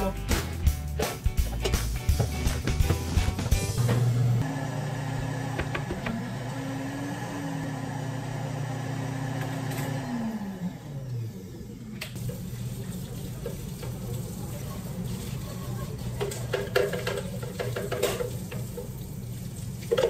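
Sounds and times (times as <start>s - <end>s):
blender running: 2.9s - 12.4s.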